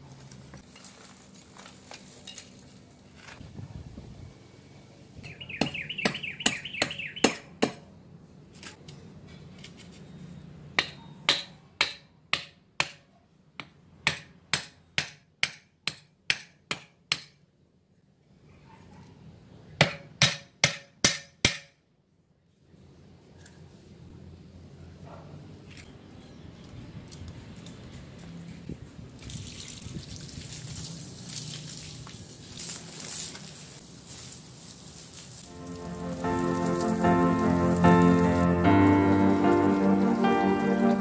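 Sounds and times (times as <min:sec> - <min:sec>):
bird chirping: 0:05.2 - 0:07.4.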